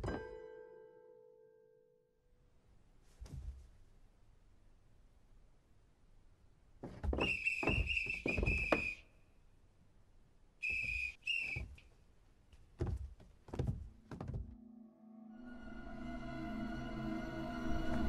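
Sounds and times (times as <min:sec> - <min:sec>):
thumps: 0:06.8 - 0:09.0, 0:12.8 - 0:14.6
wooden knocks: 0:06.8 - 0:09.0, 0:12.8 - 0:14.6
eerie music drone: 0:14.6 - 0:18.0.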